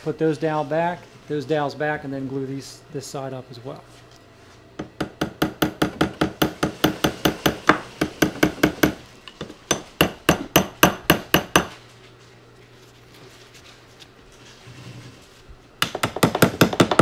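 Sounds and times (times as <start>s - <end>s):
hammer tapping on wood: 9.7s - 11.7s, 15.8s - 17.0s.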